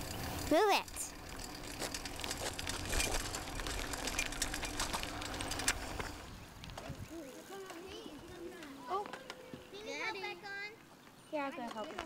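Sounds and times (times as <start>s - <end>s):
bicycle crunching over asphalt: 1.1s - 9.7s.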